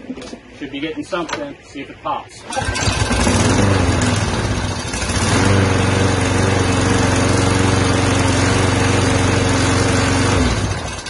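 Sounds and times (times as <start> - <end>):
lawn mower engine running: 2.4 - 11.0.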